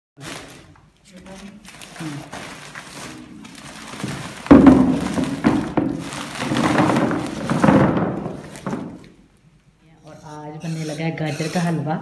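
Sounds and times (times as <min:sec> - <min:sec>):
plastic sack rustling: 0:00.2 - 0:09.2
carrots tumbling into plastic tub: 0:01.8 - 0:09.1.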